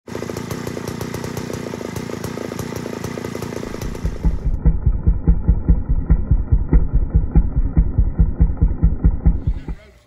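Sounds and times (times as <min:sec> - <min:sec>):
chainsaw engine running: 0:00.1 - 0:10.0
heavy low thumps: 0:03.7 - 0:09.9.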